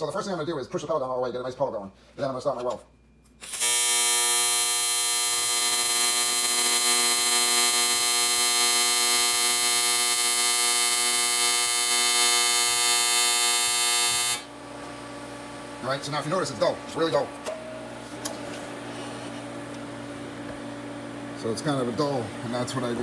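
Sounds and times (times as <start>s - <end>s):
welding arc buzz: 3.4s - 17.2s.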